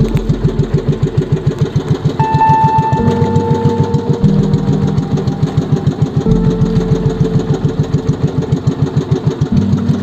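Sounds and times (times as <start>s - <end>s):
boat engine running: 0.0s - 10.0s.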